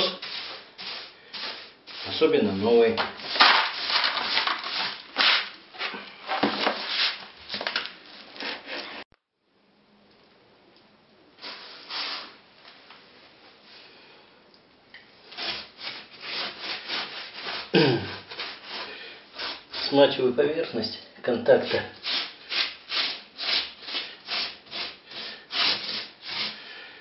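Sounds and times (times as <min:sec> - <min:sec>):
damp sponge rubbing concrete: 0:00.0 - 0:02.7, 0:15.4 - 0:20.0, 0:21.6 - 0:26.6
broom sweeping concrete floor: 0:00.0 - 0:09.0, 0:11.4 - 0:12.4, 0:15.3 - 0:20.2, 0:21.6 - 0:26.8.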